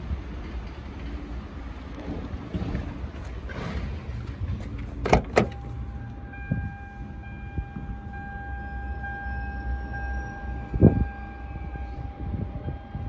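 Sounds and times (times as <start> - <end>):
car door latch clicks: 5.0 - 5.8
electronic warning tone: 5.5 - 13.0.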